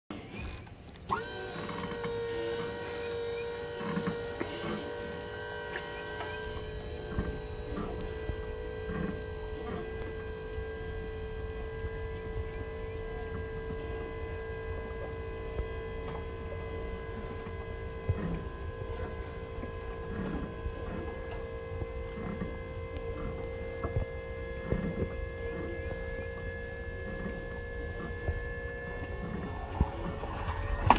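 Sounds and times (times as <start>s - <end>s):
electric motor humming: 0.1s - 30.9s.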